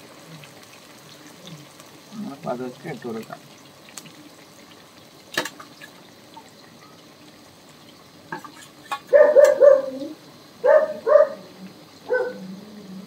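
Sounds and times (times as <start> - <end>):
chicken sizzling in hot oil: 0.0 - 13.0
dog barking: 9.1 - 11.5, 12.1 - 12.5.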